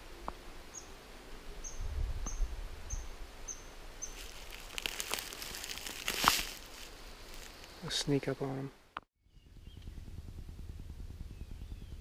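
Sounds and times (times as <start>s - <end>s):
crackly rustling: 4.0s - 7.9s.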